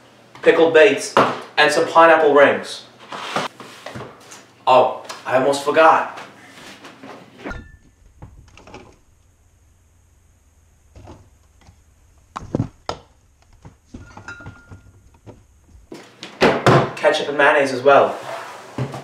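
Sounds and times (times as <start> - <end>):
refrigerator hum: 4.1 - 16.6
bottles and jars knocking: 13.6 - 15.4.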